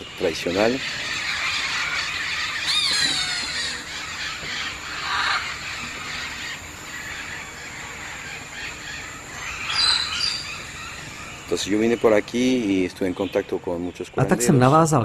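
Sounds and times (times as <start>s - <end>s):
harsh rasping bird call: 0.0s - 11.8s
forest background hiss: 0.0s - 15.0s
falling squealing bird call: 0.4s - 11.8s.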